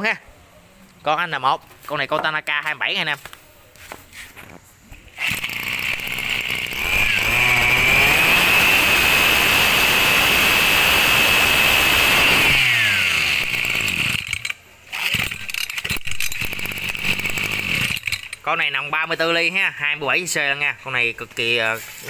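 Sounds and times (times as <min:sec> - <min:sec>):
brushcutter engine revving: 0:05.2 - 0:18.2.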